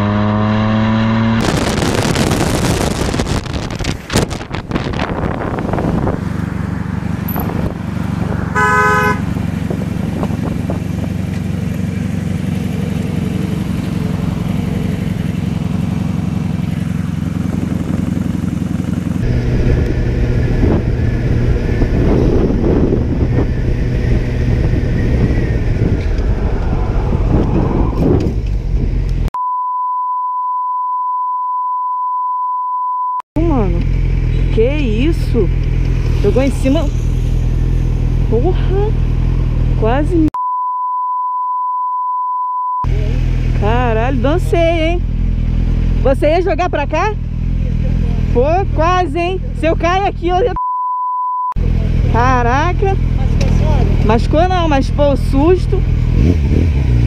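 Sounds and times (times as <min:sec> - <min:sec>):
motorcycle engine running: 0:00.0 - 0:29.3, 0:33.4 - 0:40.3, 0:42.9 - 0:50.6, 0:51.6 - 0:57.0
vehicle horn honk: 0:08.4 - 0:09.4
steady high beep tone: 0:29.4 - 0:33.2, 0:40.4 - 0:42.9, 0:50.5 - 0:51.6.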